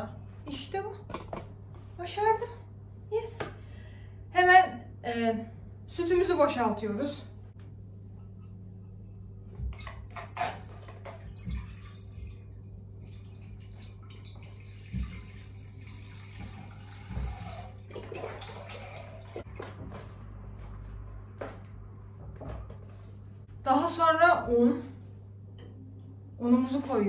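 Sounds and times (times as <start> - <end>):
low steady hum: 0.0 - 27.0
milk pouring into saucepan: 10.2 - 19.5.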